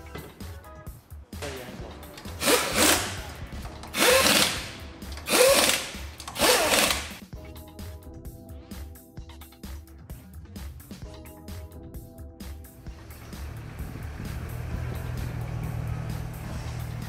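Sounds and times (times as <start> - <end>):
impact wrench bursts: 2.3 - 3.3, 3.9 - 7.2.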